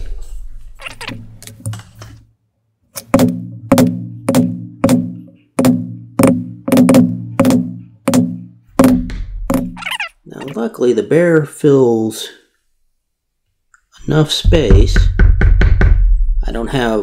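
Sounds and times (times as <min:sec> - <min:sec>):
mallet striking leather stamp: 0:03.0 - 0:09.8.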